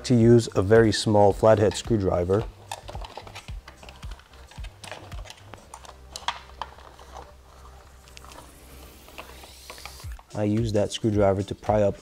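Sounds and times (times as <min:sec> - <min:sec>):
screwdriver and plastic clicks: 0:01.5 - 0:07.3.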